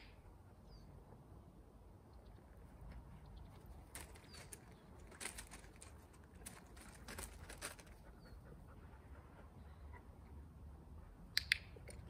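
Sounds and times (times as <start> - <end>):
faint crisp rustles: 2.7 - 8.3.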